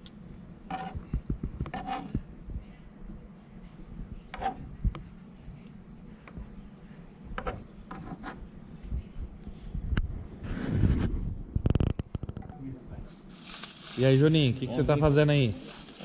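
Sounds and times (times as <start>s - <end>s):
knocks and rubbing: 0.7s - 2.2s.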